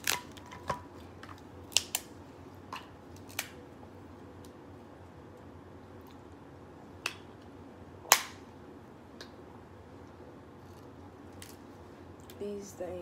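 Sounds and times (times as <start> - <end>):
crab shells cracking: 0.0 - 2.1, 2.8 - 3.6.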